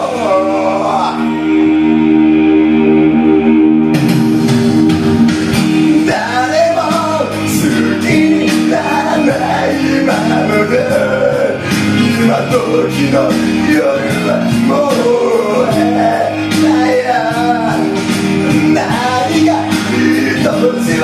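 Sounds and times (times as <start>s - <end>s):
man singing pop ballad: 0.0s - 1.3s, 6.0s - 21.0s
recorded backing track with guitar: 0.0s - 21.0s.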